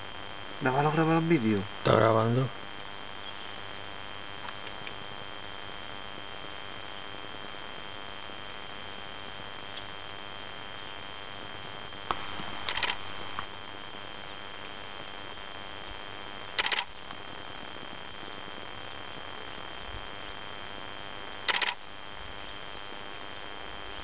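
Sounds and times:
steady hiss: 0:00.0 - 0:24.0
camera shutter bursts: 0:12.7 - 0:13.0, 0:16.6 - 0:16.9, 0:21.5 - 0:21.8.

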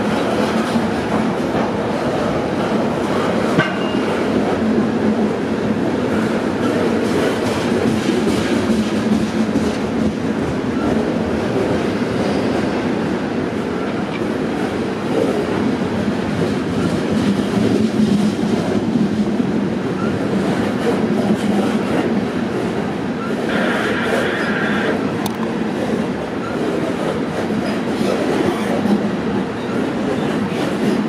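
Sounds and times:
freight train wheels rumbling: 0:00.0 - 0:31.0
train clicks: 0:02.6 - 0:04.6, 0:05.8 - 0:11.9, 0:25.2 - 0:31.0.

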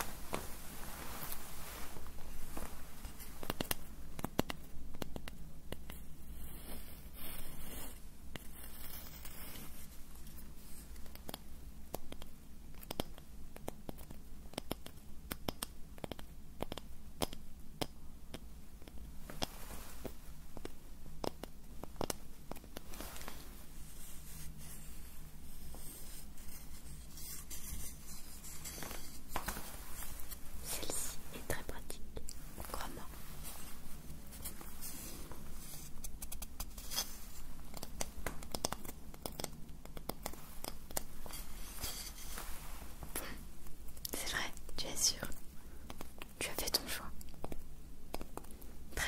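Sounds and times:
small irregular clicks and taps: 0:02.6 - 0:06.0, 0:08.3 - 0:23.4, 0:34.4 - 0:42.5, 0:43.6 - 0:49.0
scratching and rubbing on object: 0:06.0 - 0:11.3, 0:22.8 - 0:39.0, 0:40.1 - 0:43.0.

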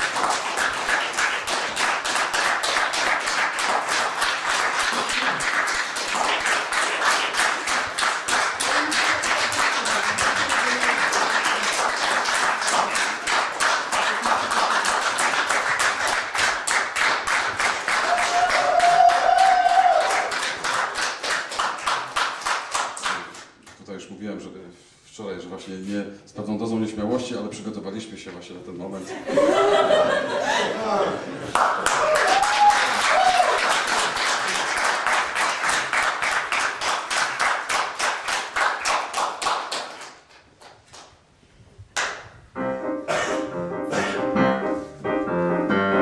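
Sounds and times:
audience clapping in rhythm: 0:00.0 - 0:23.9, 0:31.4 - 0:41.3, 0:41.9 - 0:42.3.

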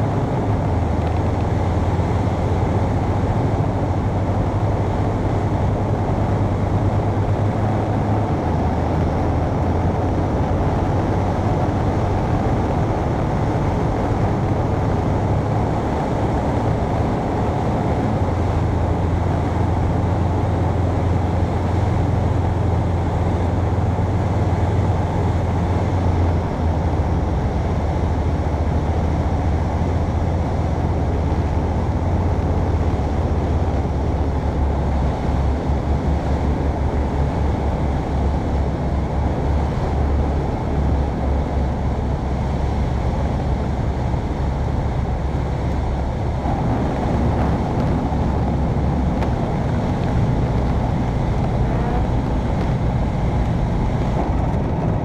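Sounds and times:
light aircraft engine: 0:00.0 - 0:55.0
rushing air: 0:39.4 - 0:55.0.

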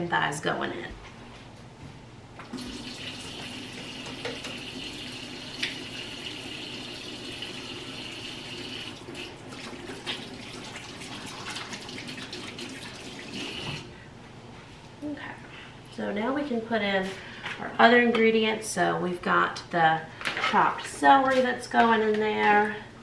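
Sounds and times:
faucet running into sink: 0:02.5 - 0:13.9.

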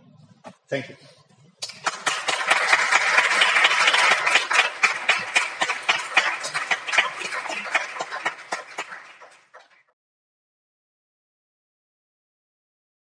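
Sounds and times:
audience applauding: 0:01.6 - 0:09.9.

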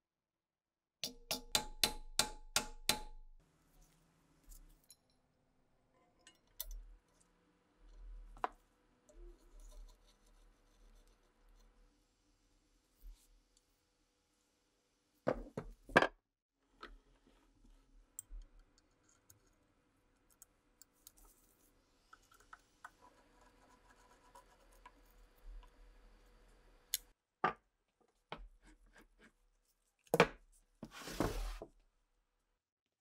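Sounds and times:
parts knocking on wooden bench: 0:15.3 - 0:16.1.

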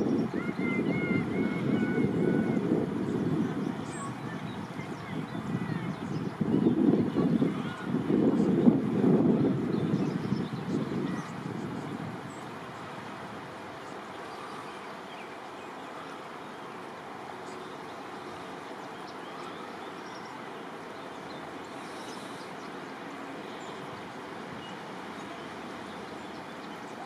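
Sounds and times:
creek water flowing: 0:00.0 - 0:27.0.

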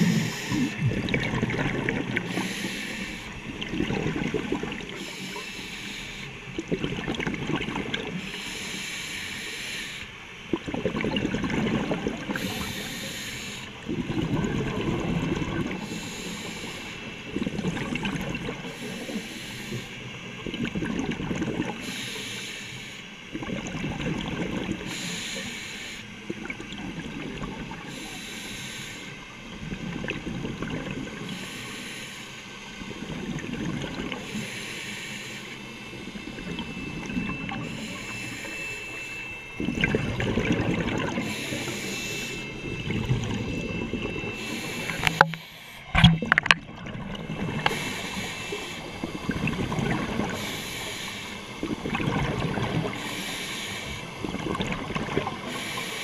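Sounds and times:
regulator inhale hiss: 0:00.0 - 0:00.9, 0:02.2 - 0:03.4, 0:04.9 - 0:06.5, 0:08.1 - 0:10.3, 0:12.3 - 0:13.8, 0:15.7 - 0:17.3, 0:18.6 - 0:20.4, 0:21.8 - 0:23.2, 0:24.8 - 0:26.2, 0:27.8 - 0:29.3, 0:31.2 - 0:33.0, 0:34.1 - 0:36.4, 0:37.3 - 0:39.3, 0:41.1 - 0:42.6, 0:44.2 - 0:45.9, 0:47.6 - 0:51.7, 0:52.8 - 0:54.3, 0:55.4 - 0:56.0
exhaled bubbles rumbling: 0:00.0 - 0:05.2, 0:06.4 - 0:08.3, 0:10.4 - 0:13.1, 0:13.7 - 0:16.0, 0:17.2 - 0:19.2, 0:20.3 - 0:21.8, 0:23.3 - 0:24.9, 0:26.2 - 0:27.9, 0:29.5 - 0:31.3, 0:32.8 - 0:34.4, 0:35.7 - 0:53.2, 0:54.0 - 0:55.8.

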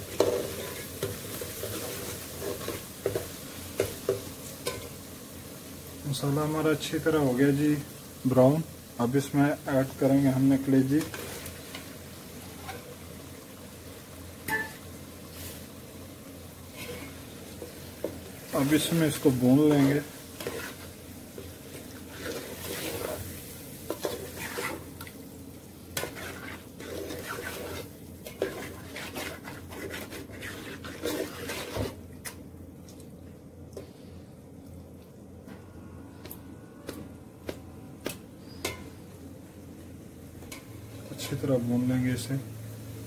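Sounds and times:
metal spoon scraping a pot: 0:19.7 - 0:20.9, 0:22.1 - 0:23.2, 0:24.0 - 0:24.9, 0:26.0 - 0:32.0.

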